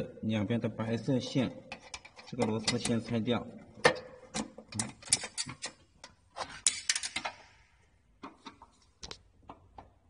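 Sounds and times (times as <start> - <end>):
screwdriver clinking on metal frame: 1.7 - 3.0, 4.4 - 7.4.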